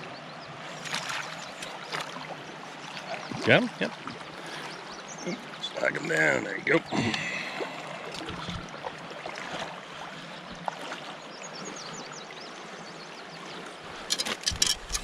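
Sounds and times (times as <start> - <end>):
river current lapping: 0.0 - 15.0
sharp splashes and knocks: 0.8 - 2.3.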